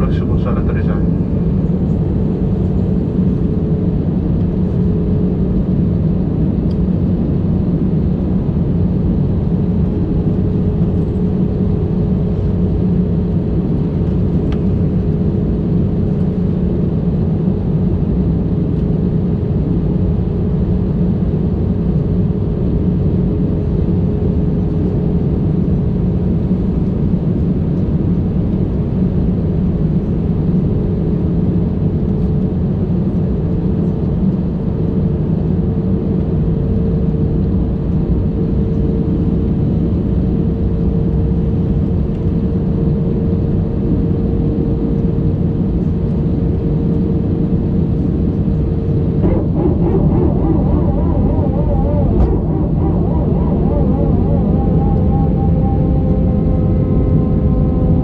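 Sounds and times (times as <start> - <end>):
roar of jet engines and airflow: 0.0 - 58.0
thin steady hum: 49.2 - 58.0.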